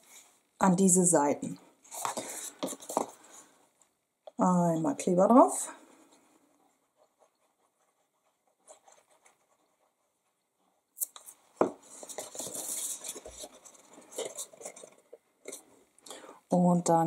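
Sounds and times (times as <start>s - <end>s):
cardstock rustling and crinkling: 1.9s - 3.5s, 11.1s - 15.7s.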